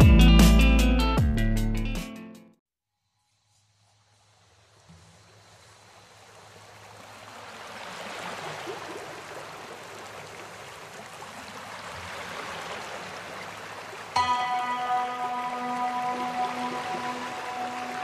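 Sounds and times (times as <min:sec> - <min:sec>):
running water rushing: 0:03.6 - 0:18.0
sustained music notes: 0:14.2 - 0:18.0.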